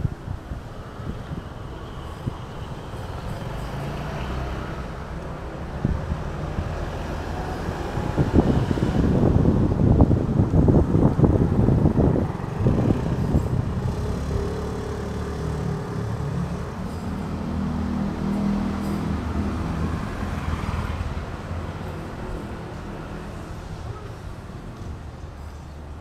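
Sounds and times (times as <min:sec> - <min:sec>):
wind buffeting microphone: 0:00.0 - 0:03.7, 0:04.6 - 0:25.1
vehicle engine passing: 0:10.7 - 0:22.9.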